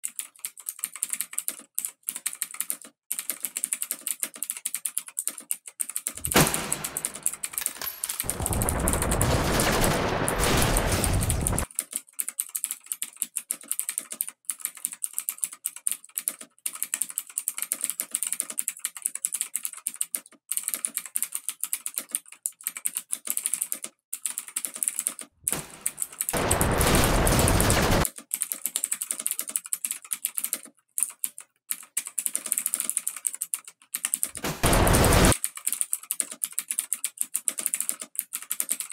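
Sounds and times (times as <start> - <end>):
rapid clicks and crackles: 0.0 - 38.9
bursts of rushing noise: 8.2 - 11.6, 25.5 - 28.0, 34.4 - 35.4.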